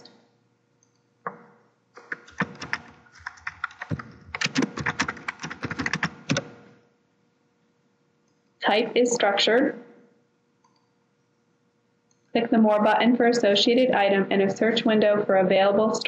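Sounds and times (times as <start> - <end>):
computer keyboard typing: 0.8 - 6.7.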